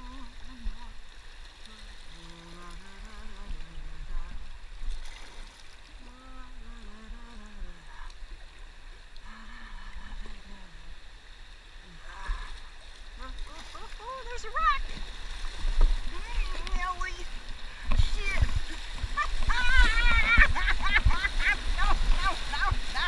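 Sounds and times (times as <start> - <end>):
person making wordless sounds: 6.0 - 8.1, 16.1 - 23.0
paddle strokes splashing: 11.0 - 23.0
river rushing: 11.5 - 23.0.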